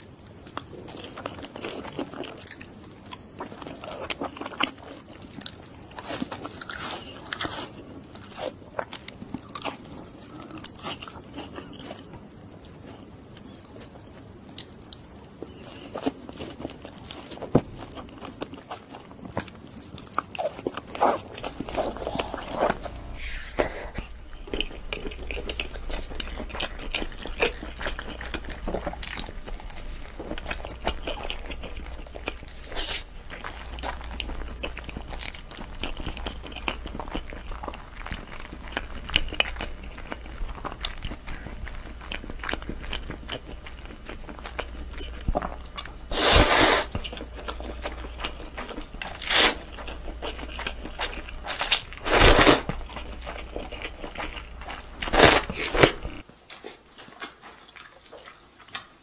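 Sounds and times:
person chewing wet mouth sounds: 15.4 - 59.0.

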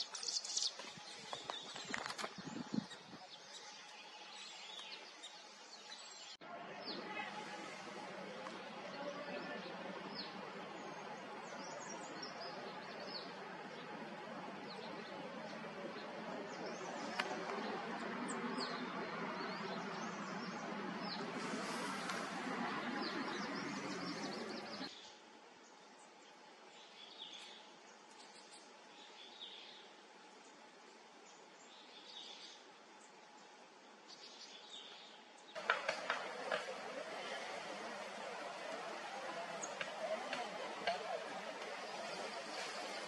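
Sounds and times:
birds chirping: 0.0 - 25.1, 34.2 - 43.0
steady rushing background: 7.8 - 24.9, 35.6 - 43.0.

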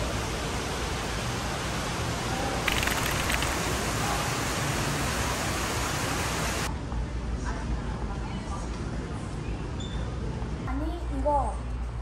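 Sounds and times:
steady hiss: 0.0 - 6.7.

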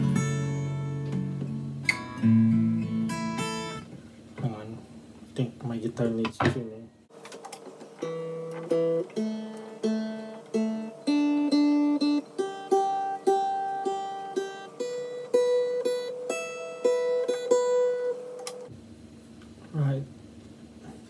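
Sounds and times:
acoustic guitar strings plucked: 0.0 - 3.9, 8.0 - 18.6
guitar note ringing: 8.0 - 18.7.

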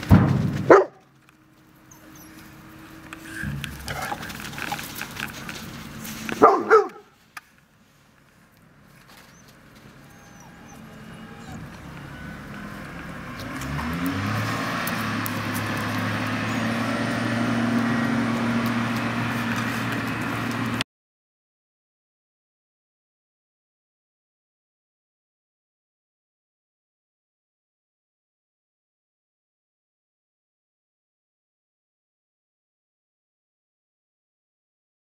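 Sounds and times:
dog barking: 0.7 - 1.0, 6.4 - 7.1.

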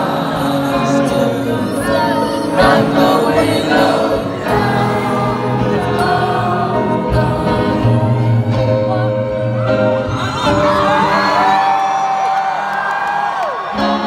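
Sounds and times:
vocal harmonies over loudspeakers: 0.0 - 11.7.

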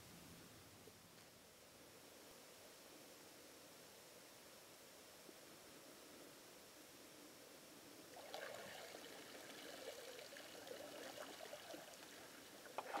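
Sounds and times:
faint hiss: 0.0 - 13.0
light splashing of wading: 8.1 - 13.0
water pouring and trickling: 8.1 - 13.0.

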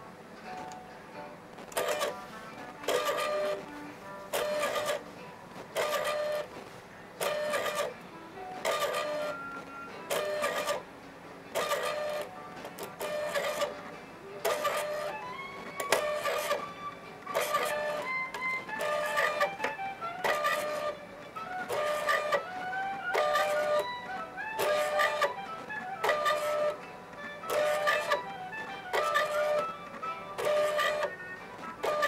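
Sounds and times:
stepping motor whining: 2.9 - 3.6, 4.3 - 5.0, 5.7 - 6.5, 7.2 - 7.9, 10.1 - 10.8, 11.6 - 13.8, 14.4 - 32.0.

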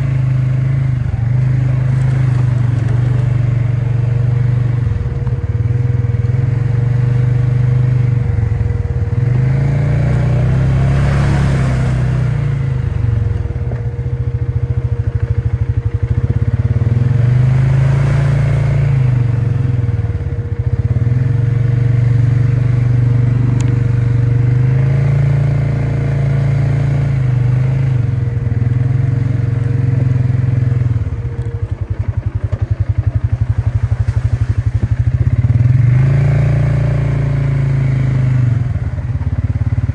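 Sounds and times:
atv engine revving: 0.0 - 39.9.

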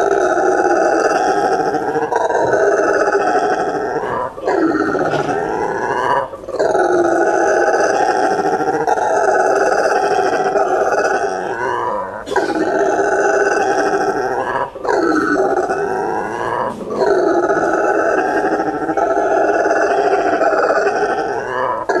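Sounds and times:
howler monkey roaring: 0.0 - 22.0.

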